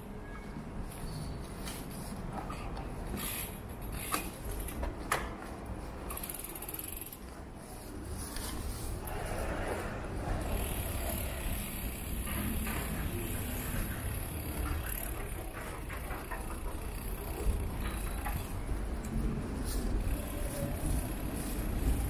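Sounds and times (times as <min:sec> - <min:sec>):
wind and road rumble: 0:07.4 - 0:22.0.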